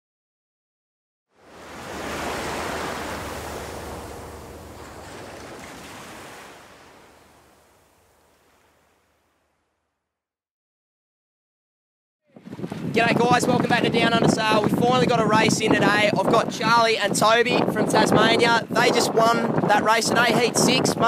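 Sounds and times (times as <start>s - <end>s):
ocean surf rushing: 1.3s - 9.6s, 12.4s - 21.0s.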